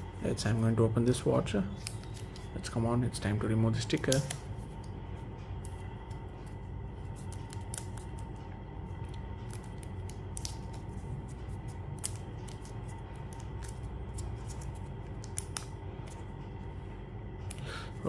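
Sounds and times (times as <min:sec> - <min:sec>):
low background hum: 0:00.0 - 0:18.0.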